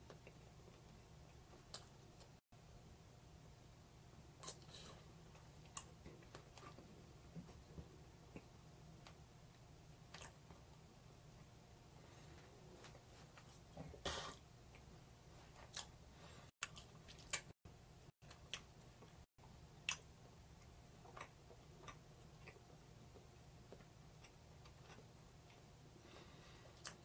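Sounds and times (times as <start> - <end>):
eating clicks and smacks: 10.1 - 10.6, 18.2 - 19.2.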